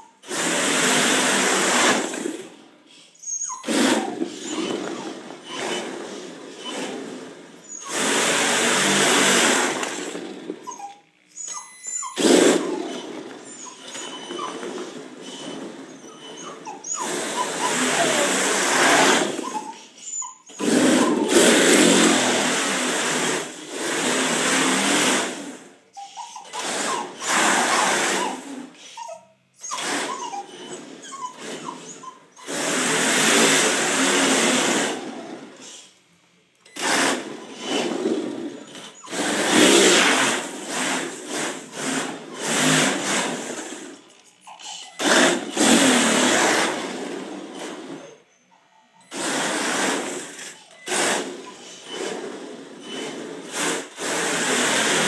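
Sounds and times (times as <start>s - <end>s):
tyres sliding on smooth floor: 0.2s - 2.6s, 3.3s - 10.9s, 11.6s - 25.7s, 29.7s - 35.8s, 36.8s - 44.2s, 45.0s - 48.1s, 49.1s - 55.0s
electric motor whining: 3.6s - 25.5s.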